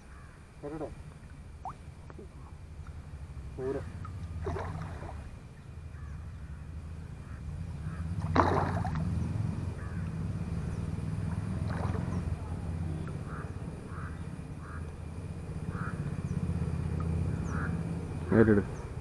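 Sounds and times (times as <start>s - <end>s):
crow cawing: 0.1s - 0.4s, 5.9s - 8.1s, 9.8s - 10.1s, 13.0s - 14.9s, 15.6s - 16.1s, 17.3s - 17.8s
fish splashing: 3.8s - 5.4s, 7.9s - 10.0s, 11.1s - 14.8s.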